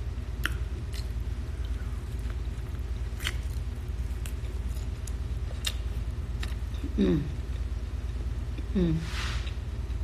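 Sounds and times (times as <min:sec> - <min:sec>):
wet chewing sounds: 0:00.4 - 0:06.7.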